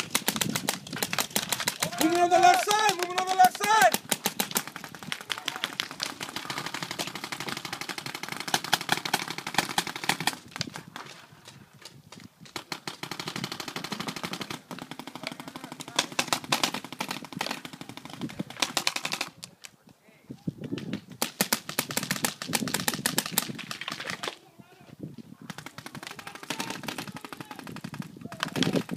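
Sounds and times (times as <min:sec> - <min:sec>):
paintball markers firing: 0:00.0 - 0:11.2, 0:12.2 - 0:19.7, 0:20.7 - 0:24.4, 0:25.5 - 0:28.9.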